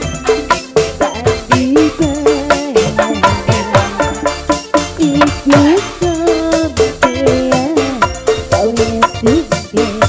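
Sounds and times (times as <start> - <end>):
sliding melody line: 0.0 - 7.4
fast drum beat: 0.0 - 10.0
live band music: 0.0 - 10.0
low drum notes dropping in pitch: 2.0 - 6.3.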